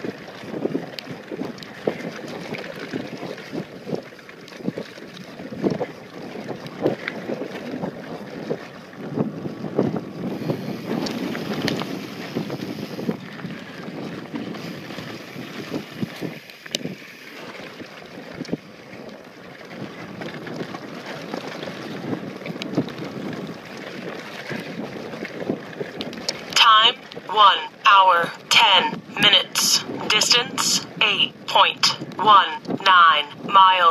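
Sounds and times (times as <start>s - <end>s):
wind buffeting microphone: 0.0s - 27.3s, 28.9s - 29.2s, 29.8s - 30.1s
bike tyres rushing over dirt: 5.8s - 26.3s.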